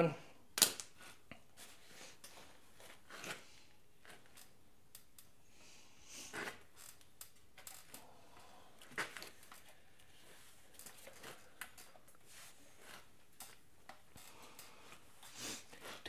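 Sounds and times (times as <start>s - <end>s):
small parts and tools clicking: 4.0s - 5.4s, 6.3s - 8.0s, 12.8s - 15.0s.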